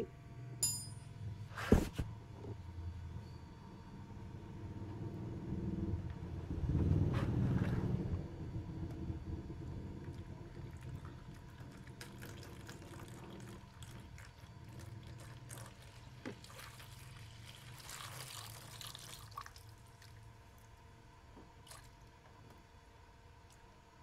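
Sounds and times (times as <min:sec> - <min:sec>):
coolant pouring and dripping: 0:08.8 - 0:20.8, 0:21.4 - 0:22.3
liquid splashing into basin: 0:15.1 - 0:20.2.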